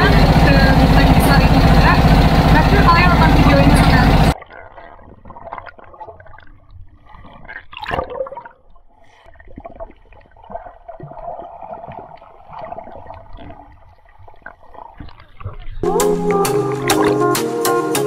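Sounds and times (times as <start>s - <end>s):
muffled underwater noise: 0.0s - 5.4s
clicks and crackles underwater: 4.4s - 15.8s.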